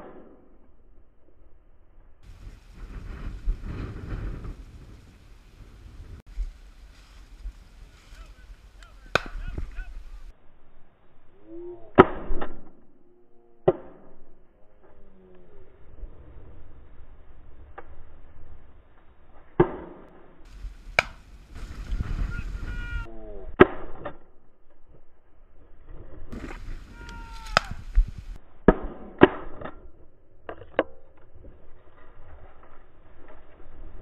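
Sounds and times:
dry cornstalks rustling: 2.2 - 10.3, 20.4 - 23.1, 25.7 - 28.4, 31.3 - 34.0
sharp knocks and cracks: 9.1 - 9.4, 13.6 - 14.2, 19.6 - 20.2, 20.9 - 21.2, 28.7 - 29.8.

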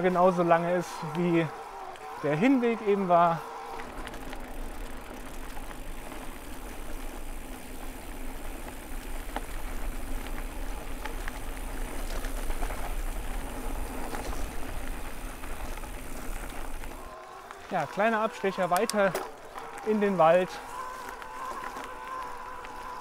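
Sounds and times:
bicycle tyre noise: 0.0 - 23.0
bike clicks and rattles: 0.0 - 23.0
wind rumbling on microphone: 3.7 - 17.1.

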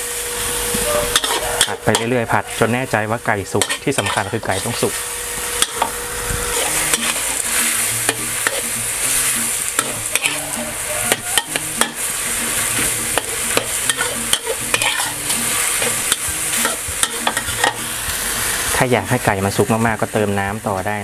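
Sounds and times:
chicken sizzling in a wok: 0.0 - 21.0
spatula scraping and tapping pan: 1.1 - 2.2, 3.6 - 4.7, 5.6 - 18.2.

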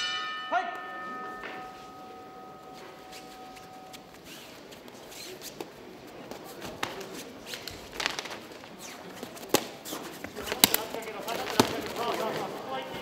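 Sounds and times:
boxing ring bell: 0.0 - 4.2.

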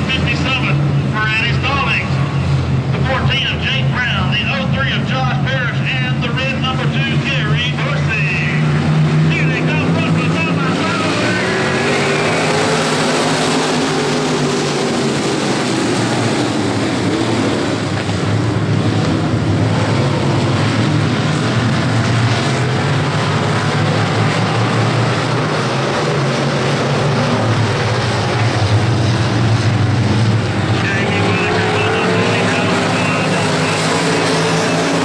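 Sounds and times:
racing car engines droning: 0.0 - 35.0.

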